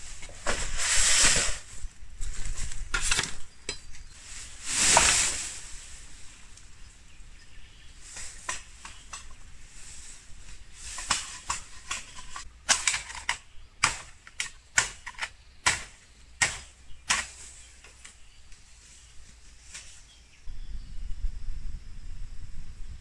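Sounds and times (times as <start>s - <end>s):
chopping blows on bamboo: 13.8s - 18.1s.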